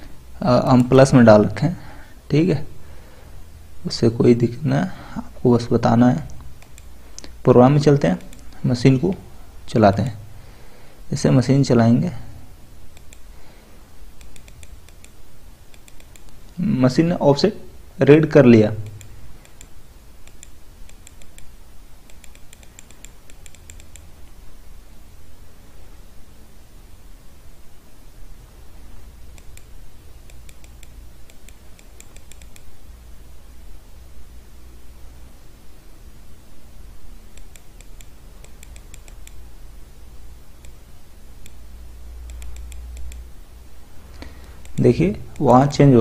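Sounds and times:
faint low hum: 0:00.0 - 0:46.0
computer clicking: 0:00.6 - 0:01.1, 0:06.2 - 0:07.4, 0:08.0 - 0:09.2, 0:12.9 - 0:13.3, 0:14.1 - 0:16.7, 0:18.7 - 0:24.3, 0:29.2 - 0:32.8, 0:37.3 - 0:39.6, 0:40.5 - 0:41.6, 0:42.2 - 0:43.3, 0:44.1 - 0:45.7.

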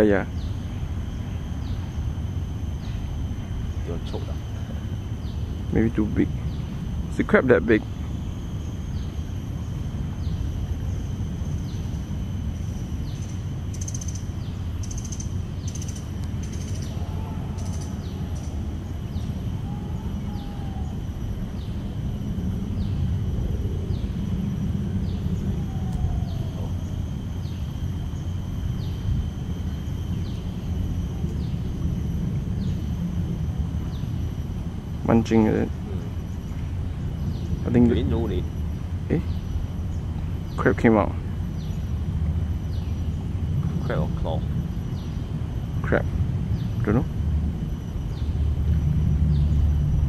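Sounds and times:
high whine: 0:00.0 - 0:50.0
bird calls: 0:02.7 - 0:22.0, 0:22.6 - 0:30.6
low rumble: 0:41.4 - 0:50.0.

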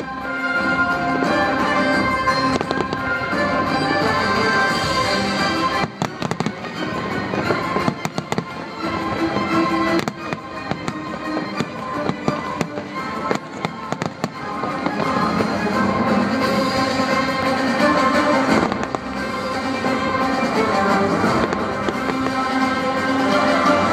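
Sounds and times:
fireworks cracking and banging: 0:00.0 - 0:23.9
music playing: 0:00.0 - 0:23.9.

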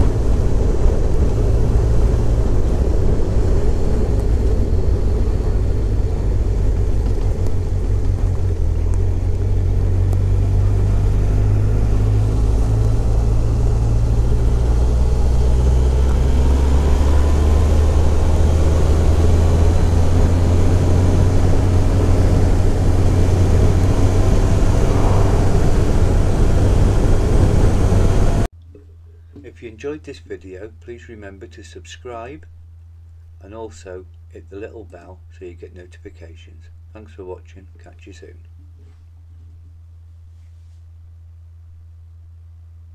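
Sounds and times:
motorcycle engine running: 0:00.0 - 0:28.5
wind rumble on microphone: 0:00.0 - 0:28.5.

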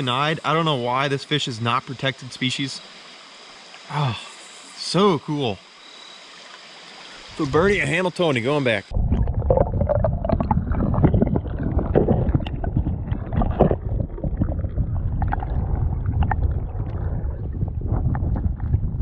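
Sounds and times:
underwater creek rushing: 0:00.0 - 0:19.0
pebbles knocking on streambed: 0:09.4 - 0:14.6.

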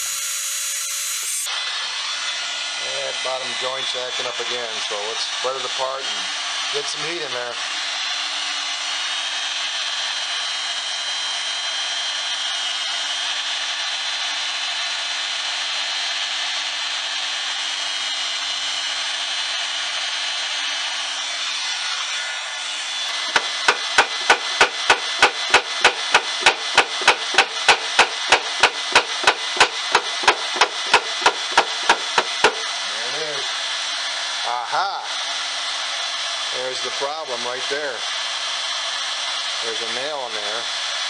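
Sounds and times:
heat gun whirring: 0:00.0 - 0:41.0
mallet rapping wooden drawer: 0:23.3 - 0:32.6.

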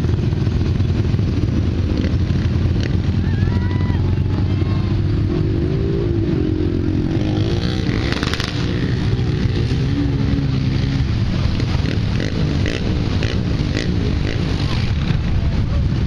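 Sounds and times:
truck engine revving: 0:04.3 - 0:16.0.

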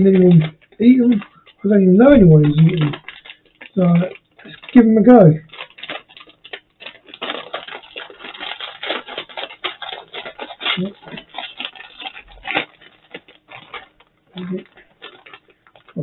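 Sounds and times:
crisp packet crinkling: 0:00.0 - 0:16.0.

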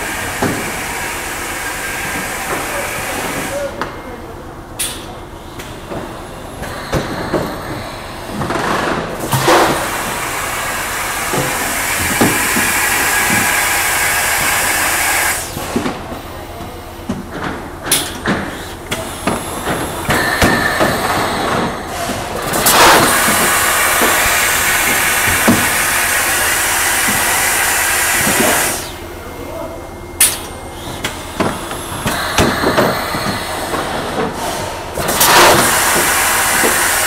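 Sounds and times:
air hissing: 0:09.3 - 0:15.8, 0:18.0 - 0:29.2, 0:30.2 - 0:37.0
machine clunks and metallic knocks: 0:30.2 - 0:36.9.

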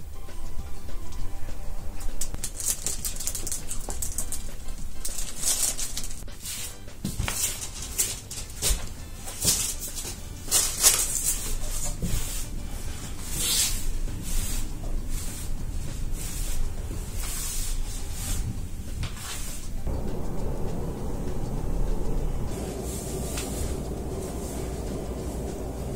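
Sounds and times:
broom sweeping a floor: 0:05.0 - 0:25.9
steady low rumble: 0:19.7 - 0:25.9.

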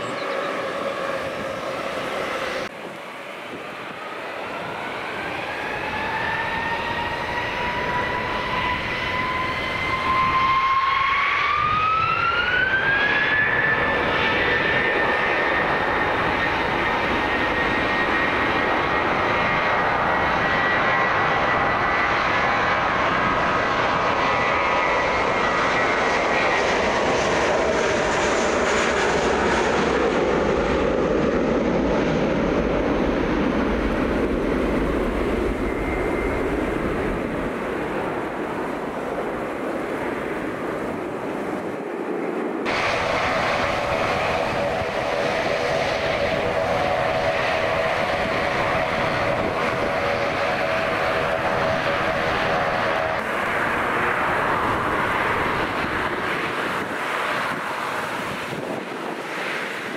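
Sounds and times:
airliner engines whining: 0:00.0 - 0:59.9
loud rush of air: 0:42.6 - 0:59.9.

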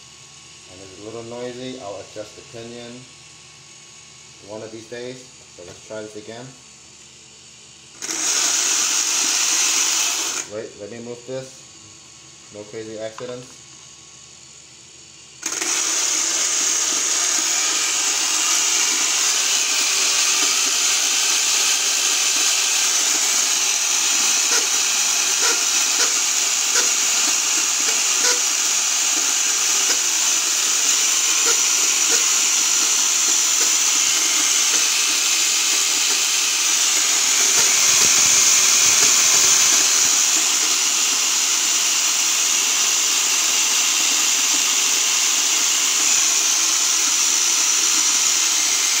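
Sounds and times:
electric motor whining with gear noise: 0:07.9 - 0:11.4, 0:15.3 - 0:49.0.

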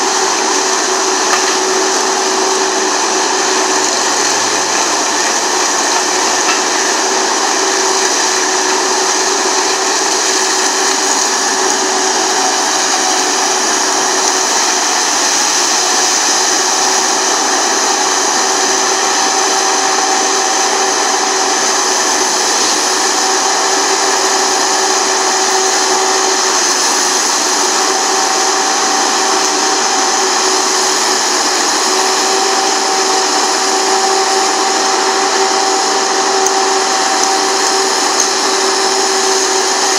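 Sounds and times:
forestry mulcher grinding brush: 0:00.0 - 0:39.9.

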